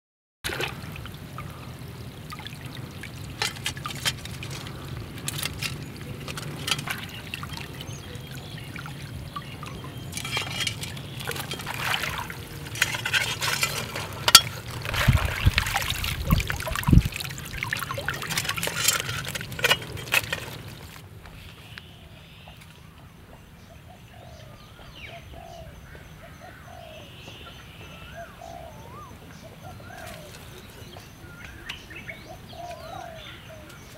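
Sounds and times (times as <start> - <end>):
water splashing and trickling: 0.4 - 21.2
birds chirping: 1.2 - 33.9.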